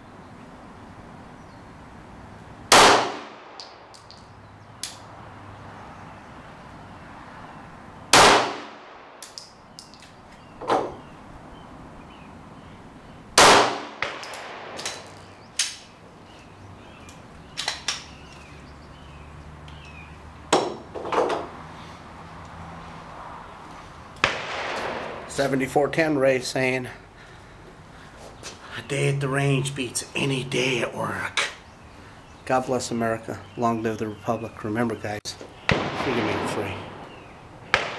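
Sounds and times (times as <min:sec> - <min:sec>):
pistol shots: 0:02.7 - 0:03.8, 0:08.1 - 0:09.4, 0:13.4 - 0:15.8, 0:24.2 - 0:25.3, 0:35.7 - 0:37.0
faint bangs: 0:24.2 - 0:25.7, 0:35.4 - 0:37.9.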